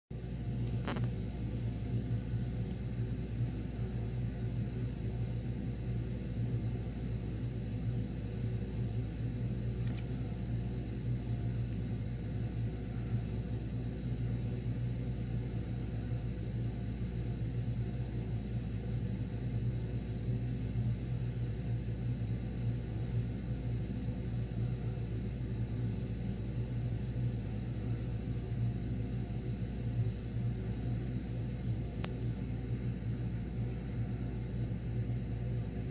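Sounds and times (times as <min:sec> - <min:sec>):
steady low hum and rumble: 0:00.1 - 0:35.9
faint click: 0:31.8 - 0:32.4.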